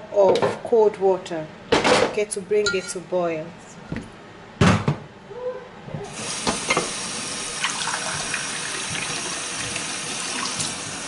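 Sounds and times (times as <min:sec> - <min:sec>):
tap running into steel sink: 0:06.4 - 0:07.0.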